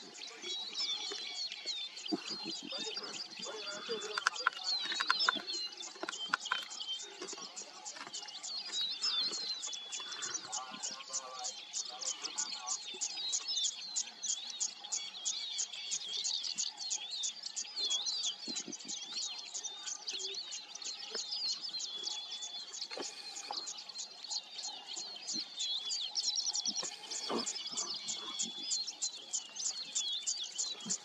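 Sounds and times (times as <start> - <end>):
birds chirping and whistling: 0.0 - 31.0.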